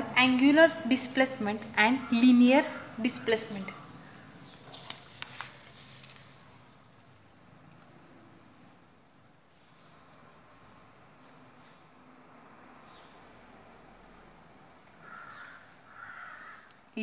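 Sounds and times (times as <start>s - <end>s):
paper rustling and sliding on desk: 4.6s - 6.6s.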